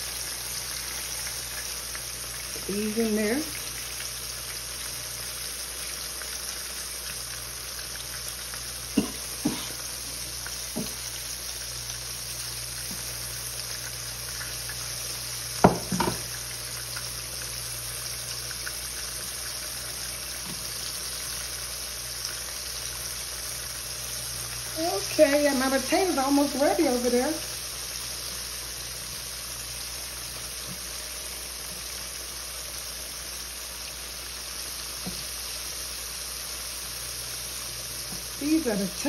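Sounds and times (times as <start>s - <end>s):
food sizzling in hot oil: 0.0s - 39.0s.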